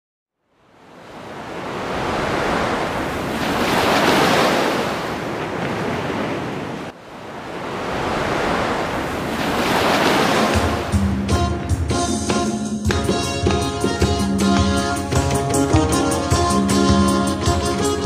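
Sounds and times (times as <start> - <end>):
rushing surf-like noise: 0.6 - 11.9
music: 10.6 - 18.0.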